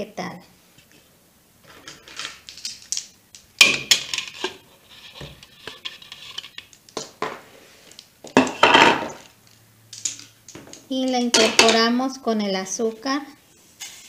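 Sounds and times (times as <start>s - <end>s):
crackles scrapes and clicks: 1.6s - 8.1s, 13.6s - 14.0s.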